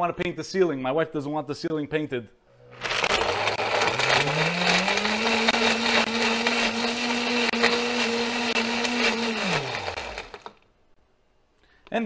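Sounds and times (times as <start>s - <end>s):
blender running: 2.6s - 10.6s.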